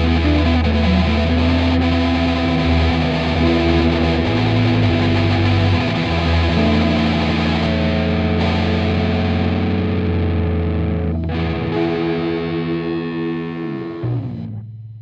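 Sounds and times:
distorted electric guitar chords: 0.0s - 15.0s.

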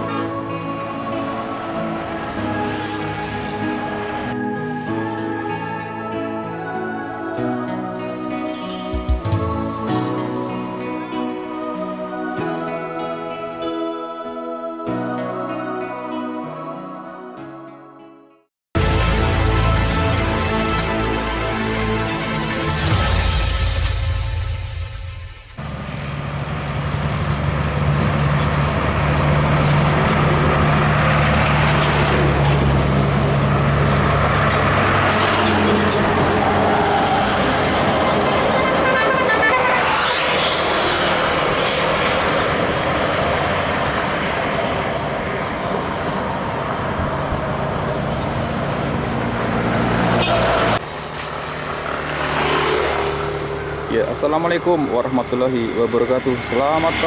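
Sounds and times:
low engine drone: 0.0s - 12.2s, 18.8s - 57.0s
bus and truck driving past: 0.0s - 12.7s, 18.8s - 57.0s
motorcycle approaching: 25.6s - 57.0s.

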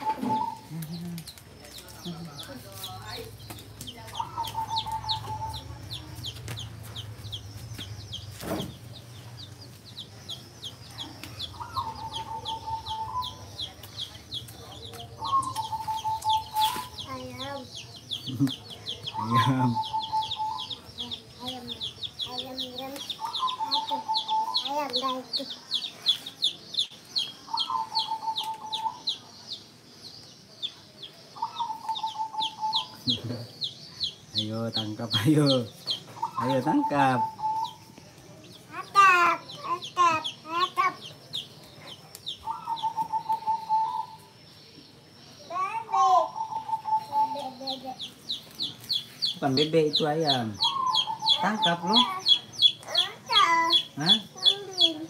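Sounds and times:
chicks peeping: 0.0s - 55.0s
thump: 8.4s - 8.8s.

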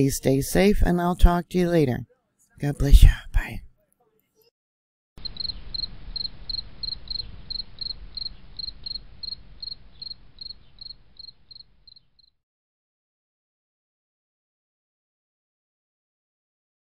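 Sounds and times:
low background noise: 5.2s - 12.2s
cricket chirping: 5.2s - 12.3s.

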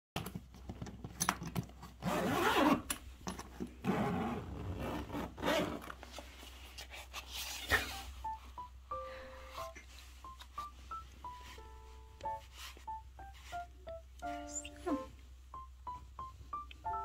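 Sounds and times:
zipper rasping open: 1.1s - 6.2s
zipper pull clicks and fabric scrapes: 1.2s - 3.0s, 3.8s - 6.0s.

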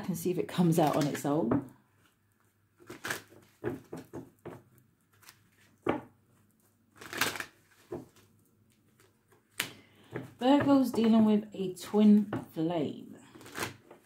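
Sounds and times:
cards being shuffled: 0.7s - 1.3s, 2.0s - 4.3s, 5.0s - 5.8s, 6.6s - 10.2s, 13.3s - 14.0s.

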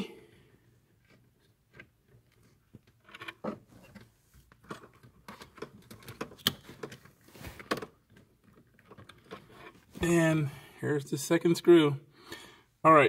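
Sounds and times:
hands rustling against wiring: 0.8s - 10.1s.

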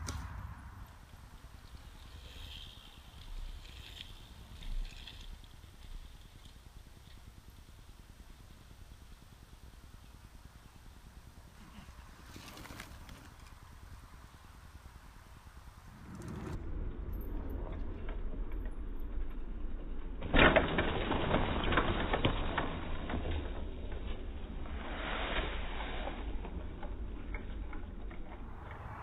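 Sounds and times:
bike rattling and clicking: 0.0s - 13.9s, 18.6s - 24.6s
bike tyres on dirt: 0.0s - 29.0s.

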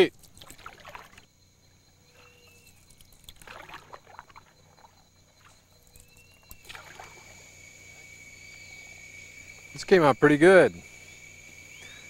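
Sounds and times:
canoe paddle splashing water: 0.2s - 1.3s, 2.2s - 5.6s, 6.6s - 7.4s.

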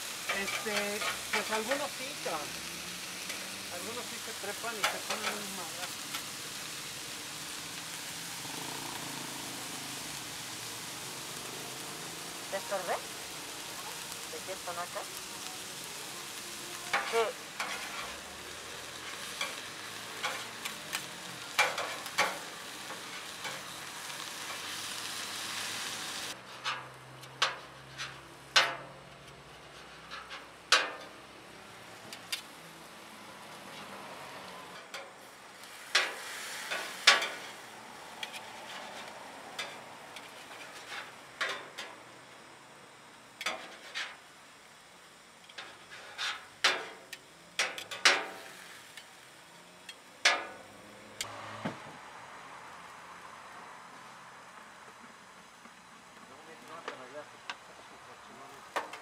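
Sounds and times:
food sizzling on a griddle: 0.0s - 59.0s
metal spatula scraping and clacking: 0.2s - 1.8s, 4.7s - 5.5s, 16.9s - 18.2s, 19.0s - 23.7s, 26.4s - 31.2s, 35.9s - 37.6s, 38.2s - 42.0s, 43.4s - 44.2s, 45.5s - 47.0s.

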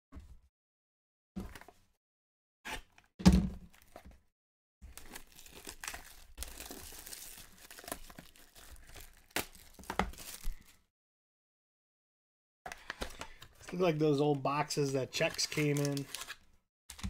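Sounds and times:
box thump: 3.2s - 3.7s
foil wrapper crinkling: 4.9s - 10.7s, 15.2s - 16.4s.

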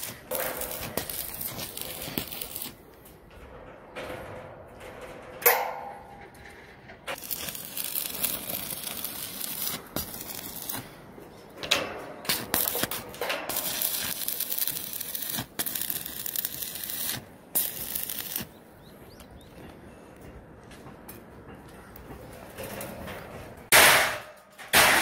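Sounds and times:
welding arc crackling: 0.0s - 2.8s, 7.1s - 11.0s, 12.3s - 18.6s.

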